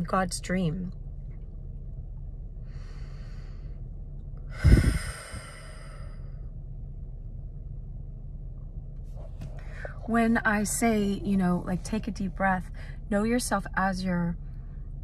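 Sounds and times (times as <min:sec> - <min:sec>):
steady low hum: 0:00.0 - 0:15.0
woman breathing: 0:02.6 - 0:06.5
breath hitting microphone: 0:04.5 - 0:06.3.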